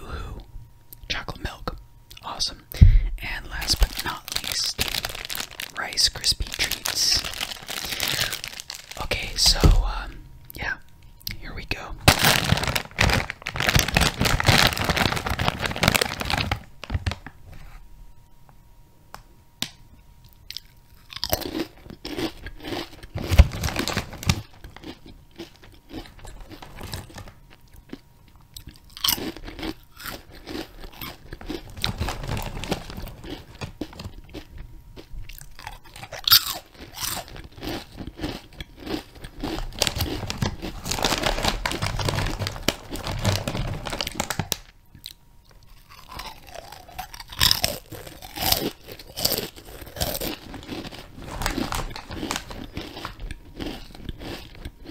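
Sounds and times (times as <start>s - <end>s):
crunching and chewing: 3.2s - 10.6s, 11.2s - 17.3s, 20.2s - 54.9s
wrapper crinkling: 3.4s - 9.9s, 12.0s - 17.4s, 22.9s - 27.5s, 30.0s - 34.6s, 38.8s - 44.7s, 45.7s - 54.6s.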